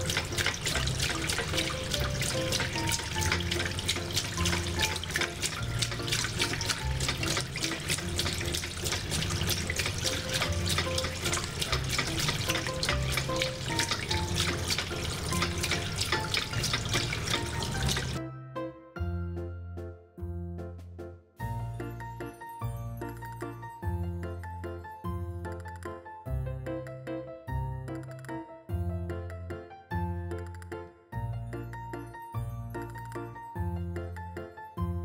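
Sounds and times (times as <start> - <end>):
water running from tap: 0.0 - 18.2
background music: 0.0 - 35.0.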